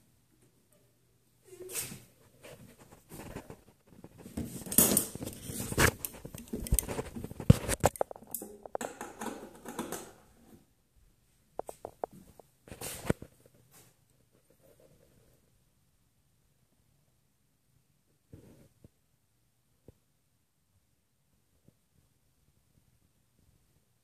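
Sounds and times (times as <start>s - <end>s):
hand-held handling noise: 2.6s - 10.3s.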